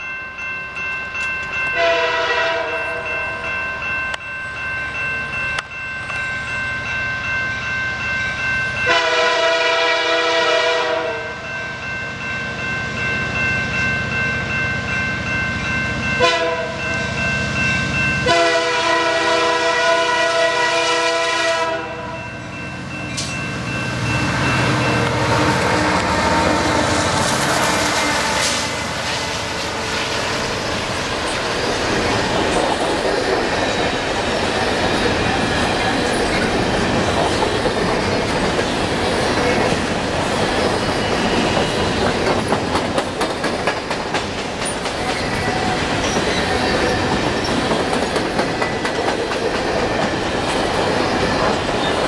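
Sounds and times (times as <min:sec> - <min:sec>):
level crossing bell ringing: 0:00.0 - 0:09.2
locomotive horn blasts: 0:01.8 - 0:03.1, 0:08.9 - 0:11.4, 0:16.2 - 0:16.8, 0:18.2 - 0:22.2, 0:24.8 - 0:28.6.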